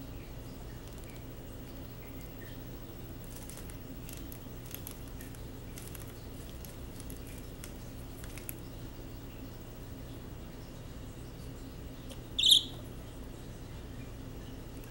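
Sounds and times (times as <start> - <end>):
faint low hum: 0.0 - 14.9
bird pecking at cloth: 3.2 - 8.6.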